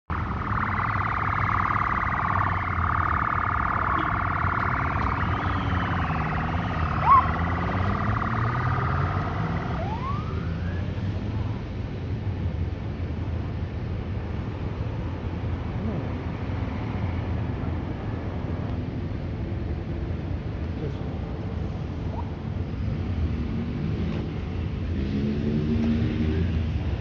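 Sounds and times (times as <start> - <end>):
street traffic rumbling: 0.0 - 27.0
high-pitched wavering drone: 0.1 - 10.3
motorcycles: 0.1 - 27.0
rising whistle-like glide: 0.2 - 10.8.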